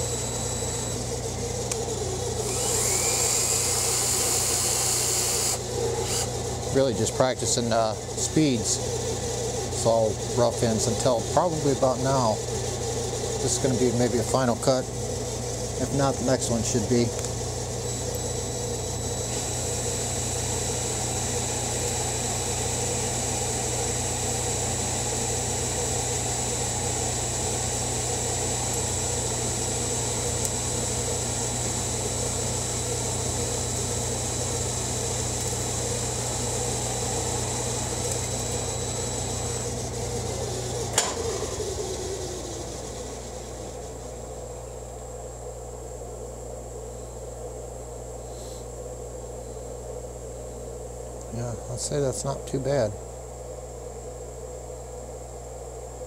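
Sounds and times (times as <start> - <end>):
lathe spinning down: 0.0 - 44.6
lathe humming with high whine: 0.0 - 56.0.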